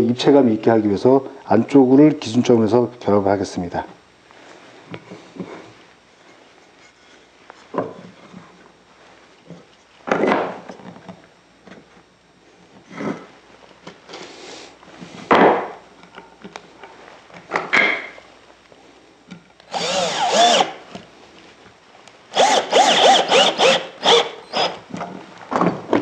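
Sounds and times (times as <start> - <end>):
cordless drill driving screws: 19.7 - 20.8, 22.3 - 24.8.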